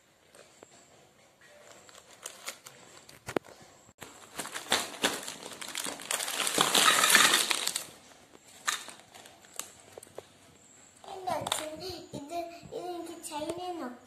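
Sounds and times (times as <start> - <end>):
hair clips clattering onto table: 6.6 - 7.6.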